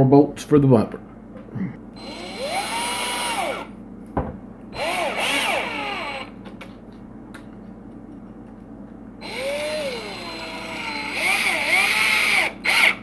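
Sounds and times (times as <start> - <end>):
cordless drill driving bolts: 2.0 - 3.7, 4.8 - 6.4, 9.2 - 13.0.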